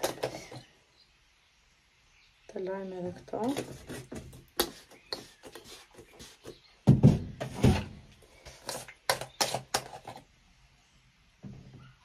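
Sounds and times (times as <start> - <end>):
objects clicking and knocking: 0.0 - 0.7, 6.9 - 10.3.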